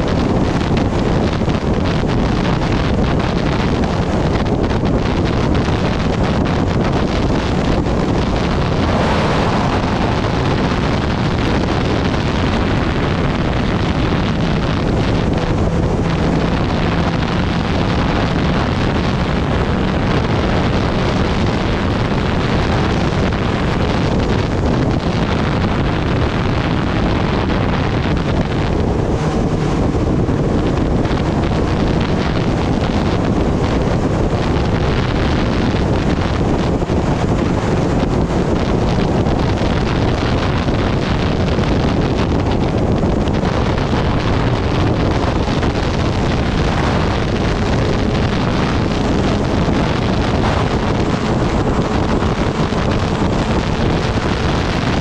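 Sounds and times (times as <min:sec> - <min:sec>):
motorcycle engine running: 0:00.0 - 0:55.0
wind rushing over microphone: 0:00.0 - 0:55.0.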